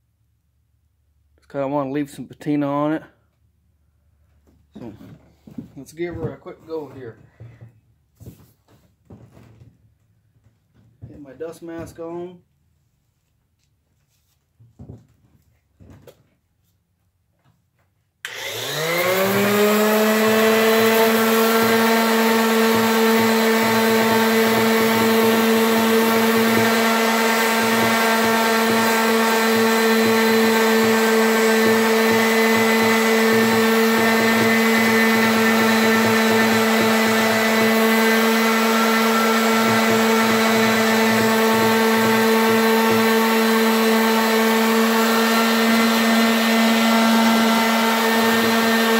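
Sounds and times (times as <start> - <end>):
orbital sander whining: 18.2 - 48.9.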